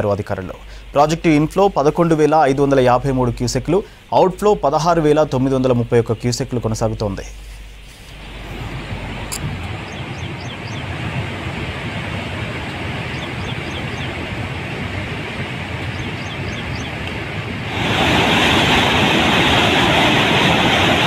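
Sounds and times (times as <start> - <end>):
rushing floodwater: 8.2 - 21.0
water pouring through spillway gates: 17.7 - 21.0.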